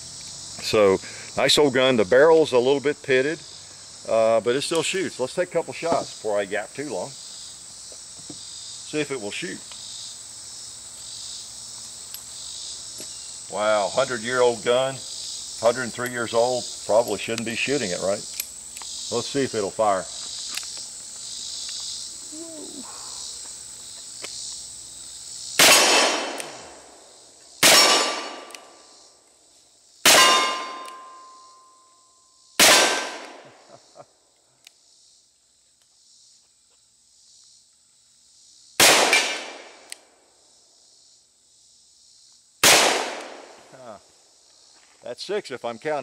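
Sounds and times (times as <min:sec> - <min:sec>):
insects chorus: 0:00.0 - 0:46.0
metallic ring of steel targets: 0:30.1 - 0:32.0.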